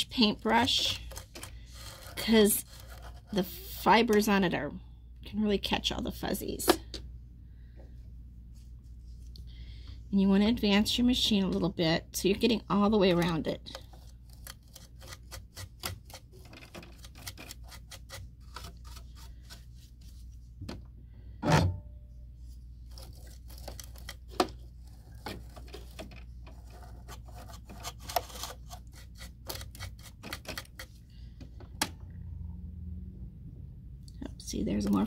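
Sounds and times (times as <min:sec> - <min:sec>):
brush scratching metal: 0:00.2 - 0:03.4, 0:14.6 - 0:20.2.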